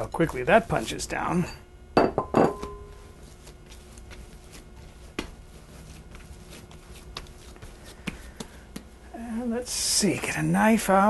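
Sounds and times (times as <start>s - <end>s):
hands pressing dough: 2.9s - 9.0s.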